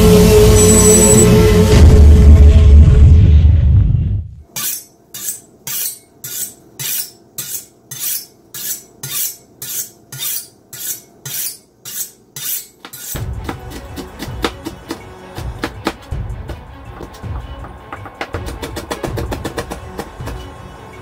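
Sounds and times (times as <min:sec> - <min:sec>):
music: 0:00.0 - 0:04.4, 0:13.2 - 0:21.0
knife swishing on honing steel: 0:04.6 - 0:13.2.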